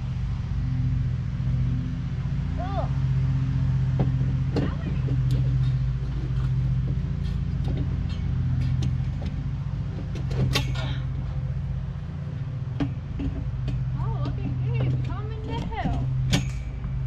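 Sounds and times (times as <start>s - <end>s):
low motor hum: 0.0s - 17.0s
metal pipes clinking: 4.6s - 9.4s, 10.0s - 11.4s.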